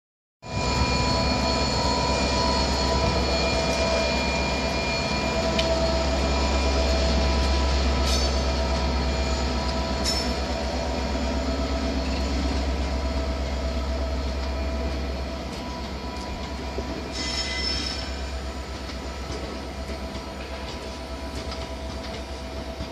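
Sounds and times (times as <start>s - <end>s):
diesel locomotive hum: 0.4s - 22.9s
wheel squeal: 17.1s - 18.3s.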